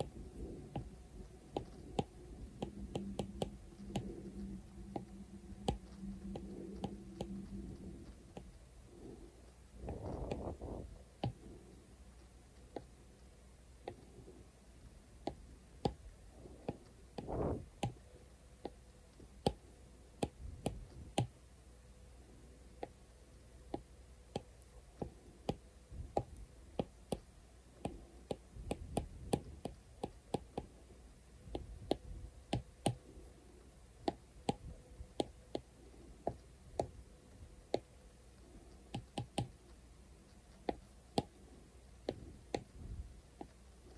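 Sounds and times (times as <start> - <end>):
soft rubbing brush strokes: 0.0 - 12.7
stylus tapping on glass screen: 1.5 - 4.2.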